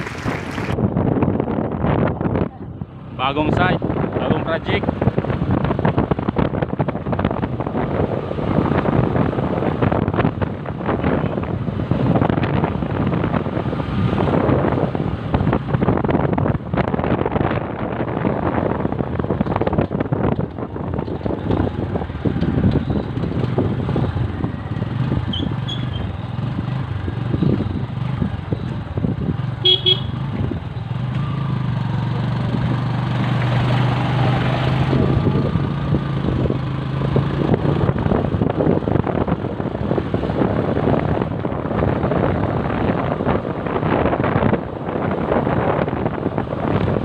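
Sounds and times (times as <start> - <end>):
motorcycle engine: 0.0 - 0.8, 17.5 - 43.2
road noise: 0.0 - 47.0
wind buffeting microphone: 0.0 - 47.0.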